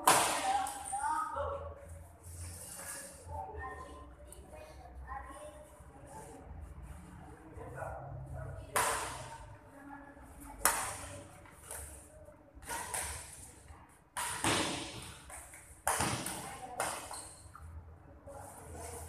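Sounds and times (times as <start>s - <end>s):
rackets smacking shuttlecock: 12.6s - 13.5s, 14.1s - 17.5s.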